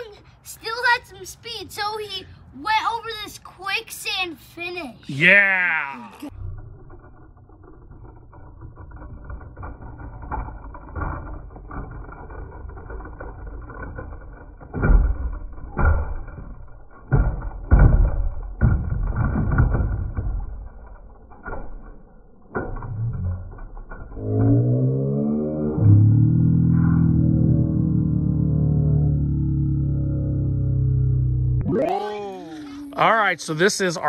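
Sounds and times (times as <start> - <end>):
knocks on wooden boards: 17.1 - 20.9
low rumble: 21.0 - 33.6.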